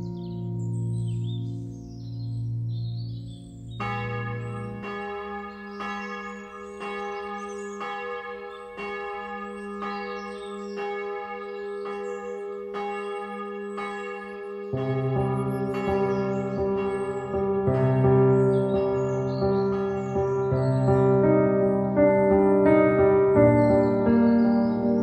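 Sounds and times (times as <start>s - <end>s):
church bell tolling: 3.7s - 25.0s.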